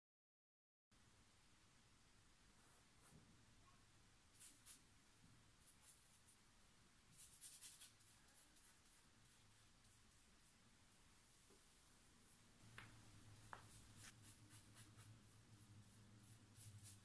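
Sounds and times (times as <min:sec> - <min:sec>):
quiet room hum: 0:00.9 - 0:17.0
paintbrush strokes on canvas: 0:04.3 - 0:04.9, 0:07.1 - 0:10.6, 0:12.2 - 0:17.0.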